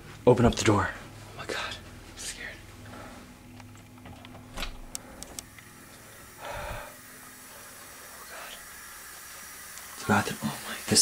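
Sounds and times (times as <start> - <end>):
small clicks: 3.6 - 5.7.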